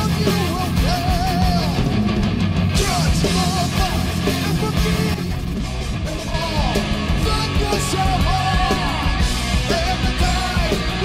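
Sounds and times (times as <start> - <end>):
rock music: 0.0 - 11.0.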